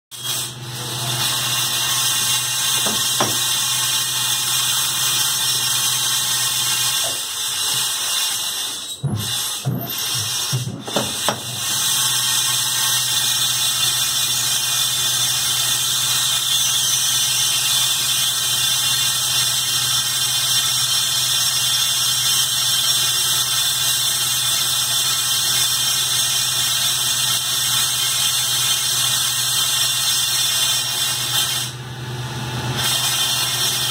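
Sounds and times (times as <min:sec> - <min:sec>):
lathe whining: 0:00.2 - 0:18.6.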